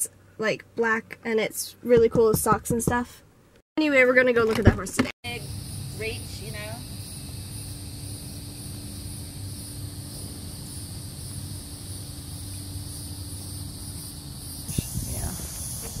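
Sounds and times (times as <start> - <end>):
insects droning: 5.2 - 16.0.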